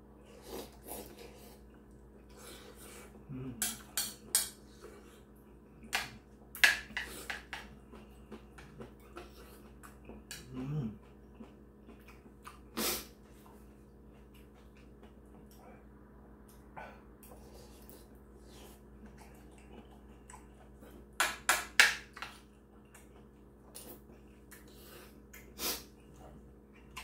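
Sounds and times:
person humming low: 0:03.2 - 0:03.7, 0:10.4 - 0:11.0
chewing: 0:07.0 - 0:16.6, 0:17.2 - 0:21.2, 0:22.1 - 0:27.0.

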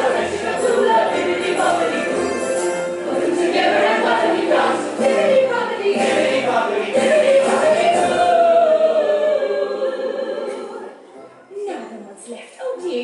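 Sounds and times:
instrumental backing: 0:00.0 - 0:09.0
voices singing together: 0:00.0 - 0:11.1.

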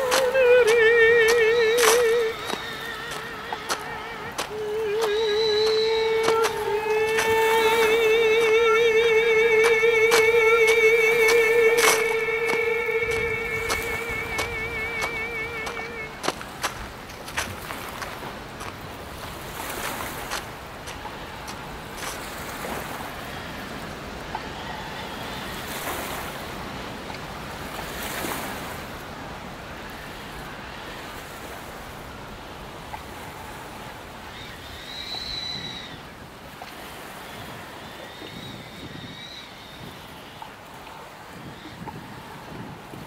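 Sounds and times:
faint high whine: 0:00.0 - 0:26.4
sea waves washing on shore: 0:00.0 - 0:43.0
wind: 0:00.0 - 0:43.0.

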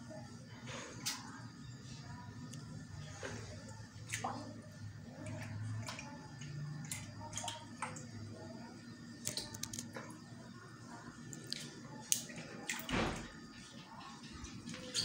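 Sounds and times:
low steady hum: 0:00.0 - 0:15.0
water dripping: 0:03.7 - 0:10.1, 0:11.2 - 0:13.7.

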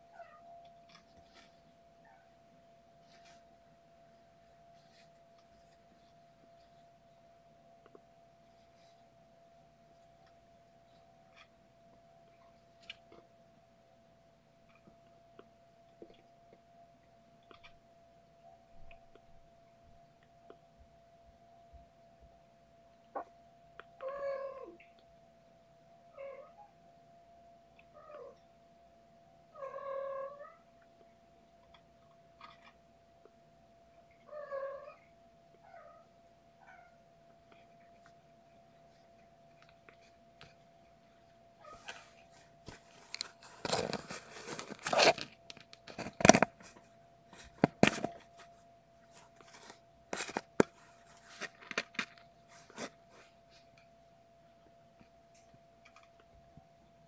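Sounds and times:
faint steady hum: 0:00.0 - 0:57.0
cat meowing: 0:24.0 - 0:24.8.

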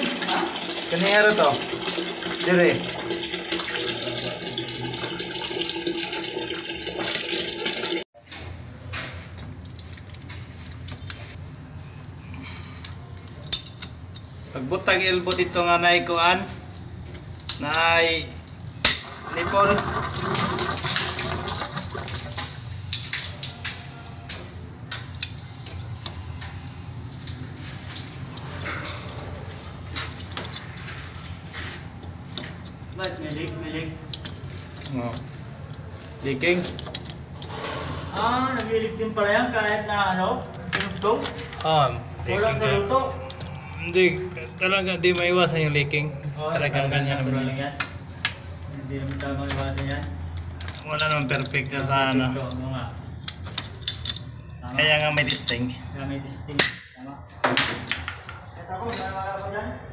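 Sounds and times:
water pouring into plastic bucket: 0:00.0 - 0:08.0, 0:19.1 - 0:22.7.

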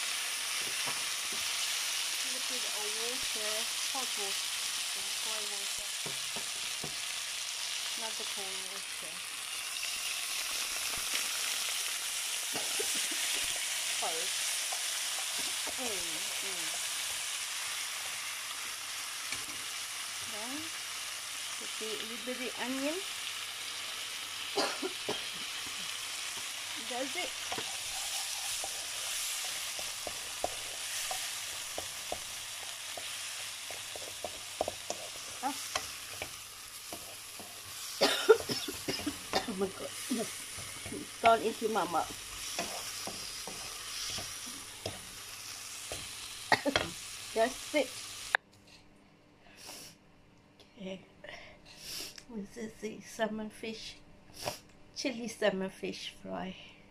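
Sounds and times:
fish sizzling in a frying pan: 0:00.0 - 0:48.4
spatula stirring: 0:26.3 - 0:47.0
utensil tapping against pan: 0:33.7 - 0:35.1.

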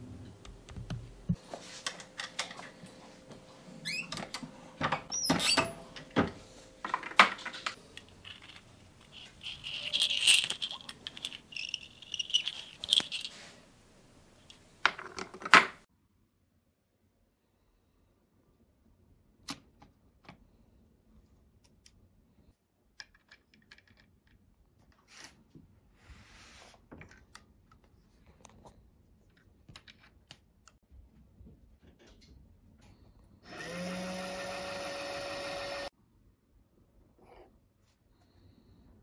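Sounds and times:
powder dispenser motor humming: 0:33.5 - 0:35.9.

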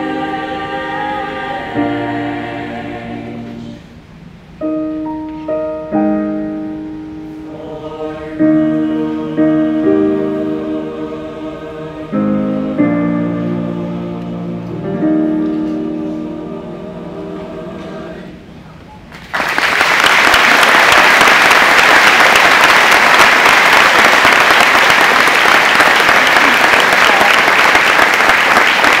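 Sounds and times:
choir with piano: 0:00.0 - 0:04.0, 0:05.0 - 0:18.6
audience applause: 0:19.1 - 0:29.0.

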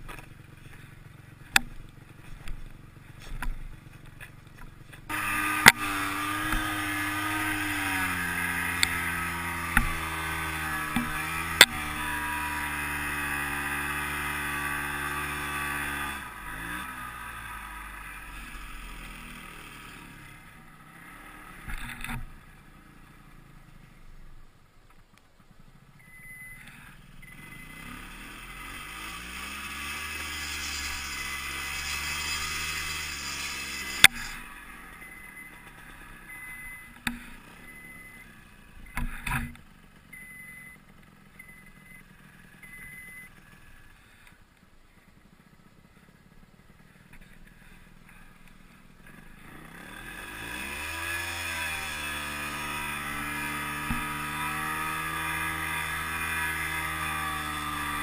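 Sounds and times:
snowmobile engine revving: 0:05.1 - 0:22.2, 0:26.8 - 0:39.5, 0:49.0 - 0:58.0.

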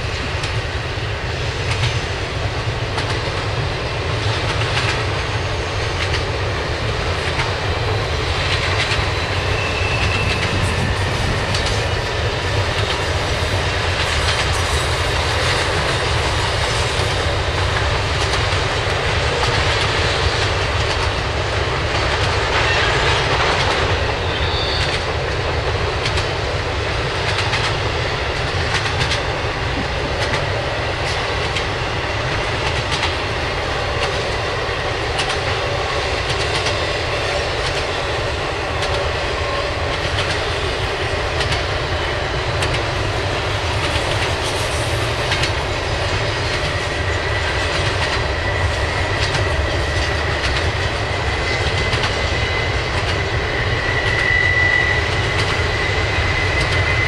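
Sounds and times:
train cars rumbling past: 0:00.0 - 0:57.0
high wheel squeals: 0:09.4 - 0:10.7, 0:24.2 - 0:25.0, 0:53.6 - 0:57.0.

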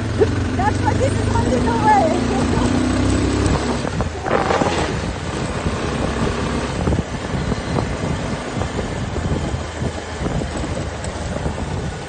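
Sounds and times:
motorcycle engine rumble: 0:00.0 - 0:12.0
tyres on dirt road: 0:00.0 - 0:12.0
wind buffeting microphone: 0:00.0 - 0:12.0.

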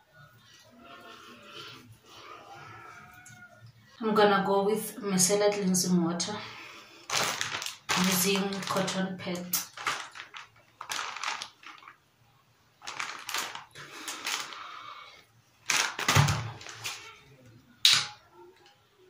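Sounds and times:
plastic bottle crinkling: 0:05.4 - 0:05.9, 0:07.0 - 0:12.1, 0:12.8 - 0:18.2.

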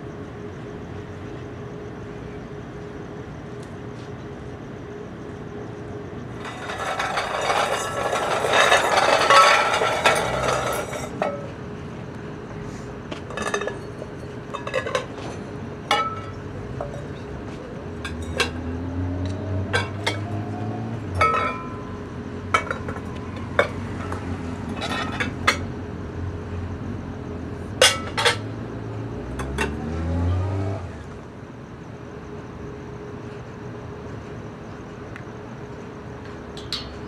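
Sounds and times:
glass bowls clinking: 0:06.4 - 0:11.4, 0:15.9 - 0:17.2, 0:21.2 - 0:21.9.

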